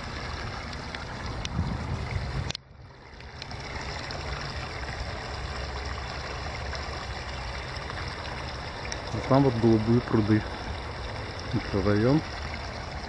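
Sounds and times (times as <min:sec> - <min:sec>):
steady low rumble: 0:00.0 - 0:13.0
streams murmuring: 0:03.5 - 0:13.0.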